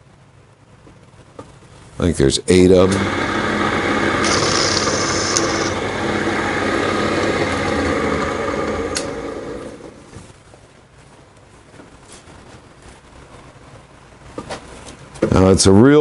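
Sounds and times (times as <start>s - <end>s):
drill press motor running: 2.8s - 10.3s
click: 4.3s - 5.5s, 8.9s - 9.1s.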